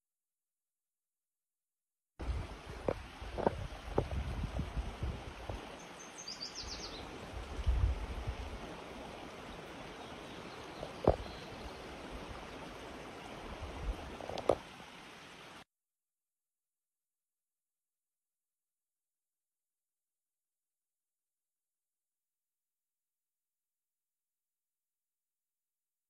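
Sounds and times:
wind rumble on microphone: 0:02.2 - 0:05.7, 0:07.2 - 0:09.4, 0:13.5 - 0:14.6.

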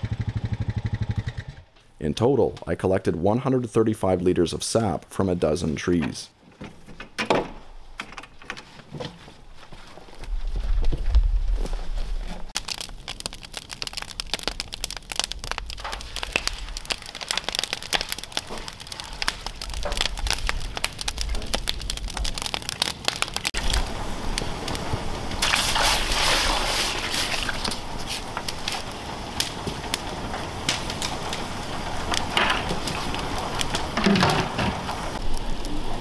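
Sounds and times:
wood fire crackling and popping: 0:07.8 - 0:36.0
rushing hiss: 0:23.7 - 0:36.0.

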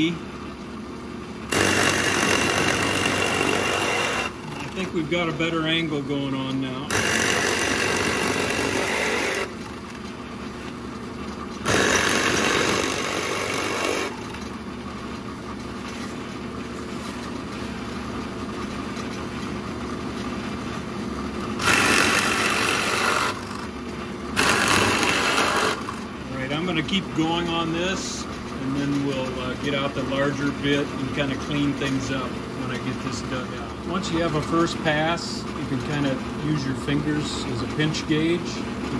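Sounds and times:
drill press motor running: 0:01.2 - 0:38.9
drill bit cutting into wood: 0:01.5 - 0:04.8, 0:06.9 - 0:09.7, 0:11.6 - 0:14.4, 0:21.6 - 0:23.6, 0:24.4 - 0:26.0.

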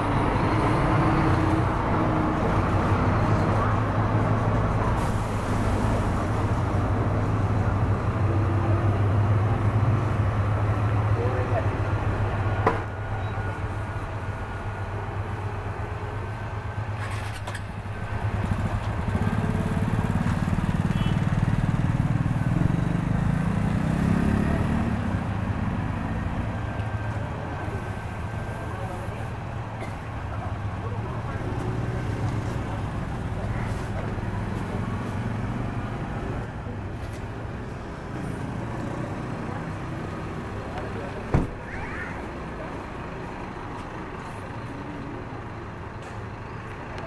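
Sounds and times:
diesel bus engine droning: 0:00.0 - 0:47.0
air brake hiss: 0:05.0 - 0:06.2.

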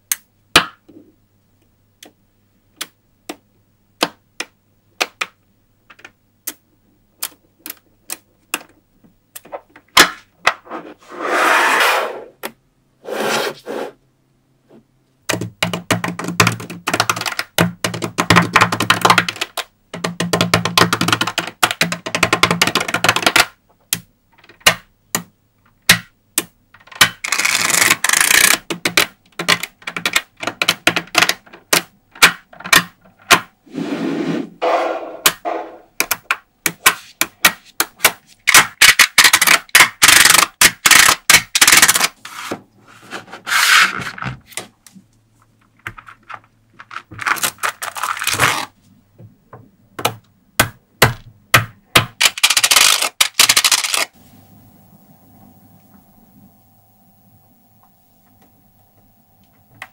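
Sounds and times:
rubbing scrape: 0:10.6 - 0:12.4, 0:13.0 - 0:14.0, 0:33.6 - 0:35.9, 0:42.2 - 0:44.2
magnetic balls clicking: 0:15.3 - 0:33.5, 0:36.0 - 0:42.1, 0:51.1 - 0:54.2.

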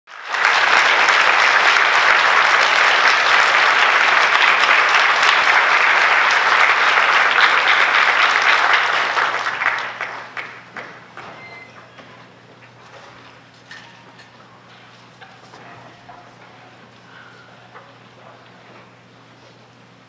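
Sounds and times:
audience applauding: 0:00.1 - 0:12.4.

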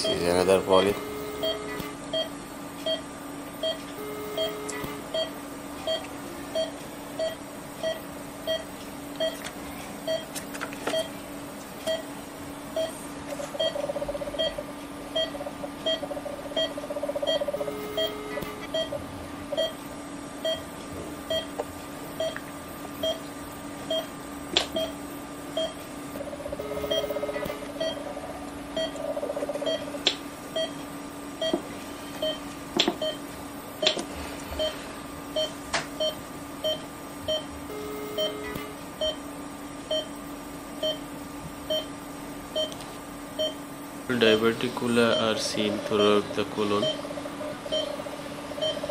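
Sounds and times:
electronic tone and buzz: 0:00.0 - 0:09.4, 0:12.7 - 0:19.9, 0:24.7 - 0:30.8, 0:35.4 - 0:39.3
patient monitor beeping: 0:00.0 - 0:09.4, 0:10.0 - 0:11.1, 0:11.8 - 0:12.1, 0:12.7 - 0:19.8, 0:20.4 - 0:20.7, 0:21.3 - 0:21.6, 0:22.2 - 0:22.4, 0:23.0 - 0:24.1, 0:24.7 - 0:25.8, 0:26.4 - 0:28.2, 0:28.8 - 0:29.9, 0:30.5 - 0:30.8, 0:31.4 - 0:32.4, 0:33.0 - 0:33.2, 0:34.6 - 0:34.8, 0:35.4 - 0:39.2, 0:39.9 - 0:40.2, 0:40.8 - 0:41.1, 0:41.7 - 0:42.0, 0:42.6 - 0:42.8, 0:43.4 - 0:43.6, 0:44.2 - 0:48.0, 0:48.6 - 0:48.9
electrical hum: 0:00.0 - 0:48.9.

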